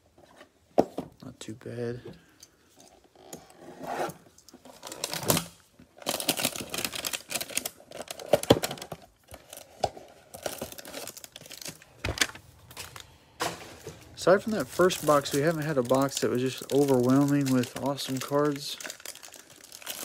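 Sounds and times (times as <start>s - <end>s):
plastic wrapper crinkling: 4.7s - 20.0s.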